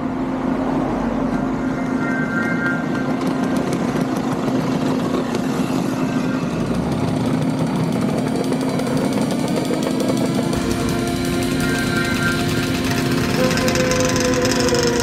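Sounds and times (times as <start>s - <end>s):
two-stroke engines pulsing: 0.0s - 15.0s
scooters riding past: 3.0s - 15.0s.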